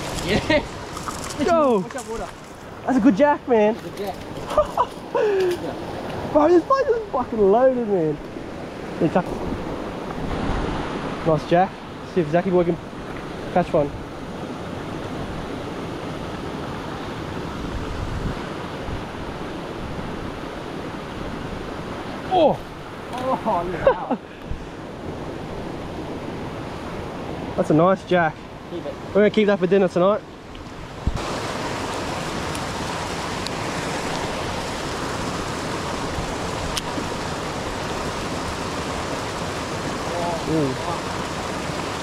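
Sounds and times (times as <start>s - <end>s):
waterfall rushing over rocks: 0.0s - 4.1s, 31.0s - 42.0s
water rushing over rocks: 0.0s - 42.0s
wind rumble on microphone: 8.3s - 11.2s, 12.9s - 22.9s, 30.5s - 40.0s.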